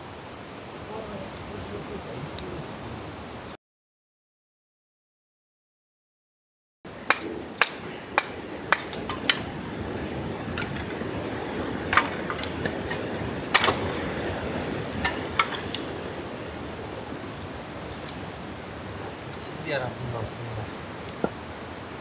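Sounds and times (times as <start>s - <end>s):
hatchet chopping wood: 7.0s - 9.4s, 11.9s - 14.0s.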